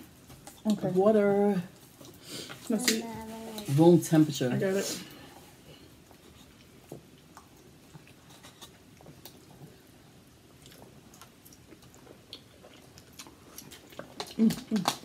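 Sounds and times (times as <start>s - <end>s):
soft chewing: 5.1s - 15.0s.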